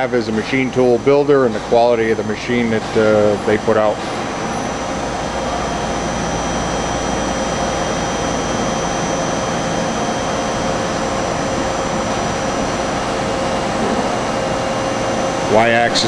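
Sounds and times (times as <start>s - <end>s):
machine mechanical hum: 0.0s - 16.0s
machine whining tones: 0.0s - 16.0s.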